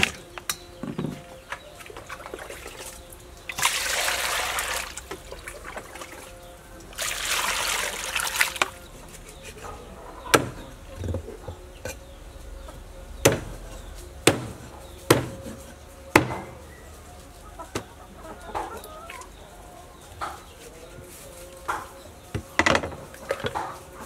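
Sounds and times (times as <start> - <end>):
chickens clucking: 0.0 - 24.0
cleaver chopping on wooden board: 10.3 - 11.2, 13.2 - 13.6, 14.2 - 16.6.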